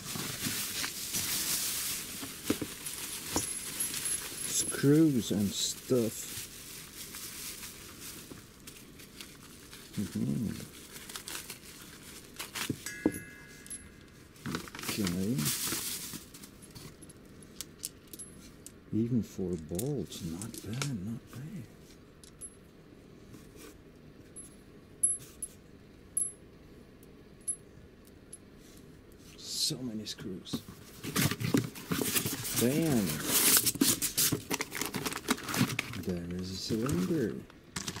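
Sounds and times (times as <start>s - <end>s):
bubble wrap crinkling: 0.0s - 17.0s, 31.0s - 38.0s.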